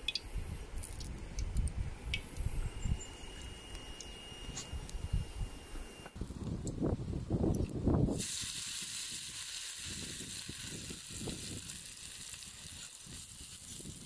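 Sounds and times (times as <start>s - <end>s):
paste sizzling in hot oil: 8.1s - 14.0s.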